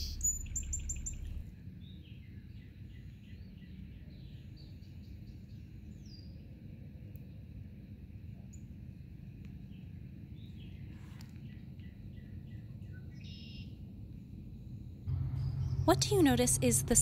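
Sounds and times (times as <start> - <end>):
birds chirping: 0.0 - 1.4, 15.1 - 17.0
low rumble: 0.0 - 1.5, 15.1 - 17.0.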